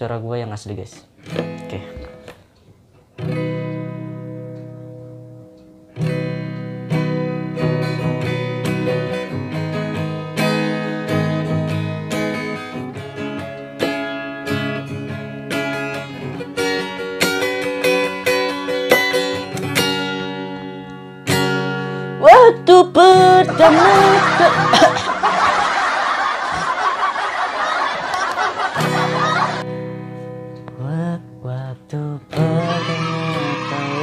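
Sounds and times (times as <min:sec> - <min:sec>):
acoustic guitar chords: 0:01.1 - 0:34.0.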